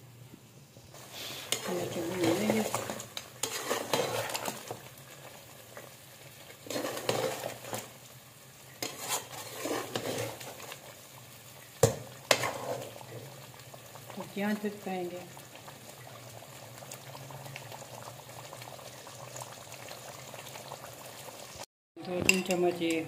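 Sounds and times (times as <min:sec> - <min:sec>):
sauce sizzling: 0:00.0 - 0:21.7
metal spoon stirring in pan: 0:01.0 - 0:08.0, 0:08.7 - 0:10.9, 0:11.8 - 0:13.4.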